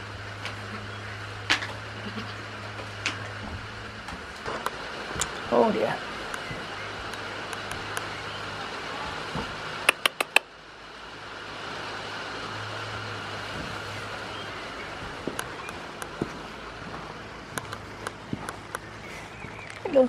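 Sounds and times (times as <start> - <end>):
steady rain: 0.0 - 20.0
sharp clicks: 9.9 - 10.4.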